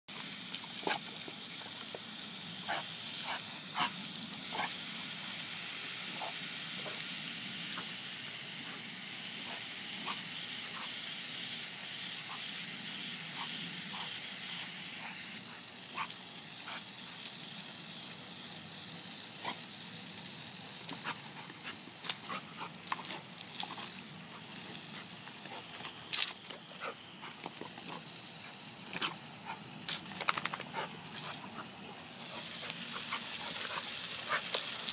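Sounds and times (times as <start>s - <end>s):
garden hose spraying water: 0.1s - 34.9s
dog biting at water stream: 20.8s - 28.1s, 28.8s - 34.9s.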